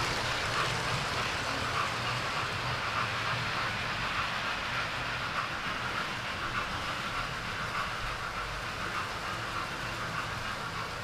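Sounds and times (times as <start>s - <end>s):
model trains running: 0.0s - 11.0s.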